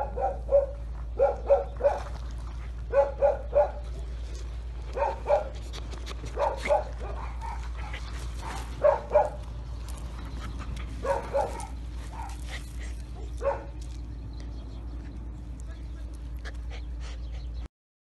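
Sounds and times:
young dog barking and yipping: 0.0 - 4.1, 4.8 - 14.0.

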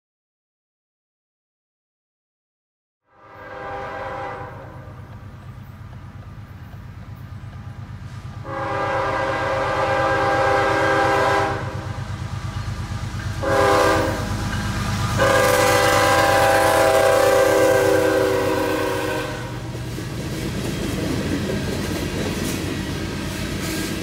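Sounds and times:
locomotive air horn blasts: 3.1 - 5.1, 8.4 - 12.0, 13.4 - 14.4, 15.1 - 19.7
low engine rumble: 4.0 - 17.2.

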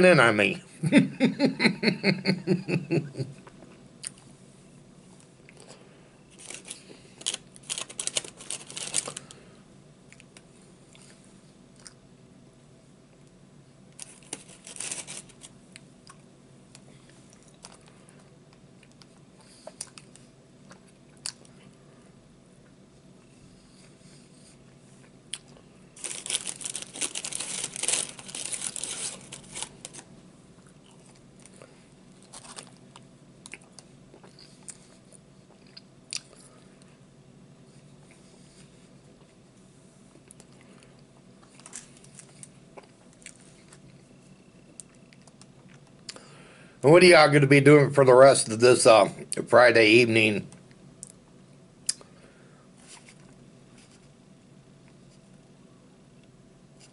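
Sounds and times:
paper wrapper crinkling and tearing: 6.3 - 9.4, 14.0 - 15.6, 26.0 - 30.1, 32.2 - 32.8.

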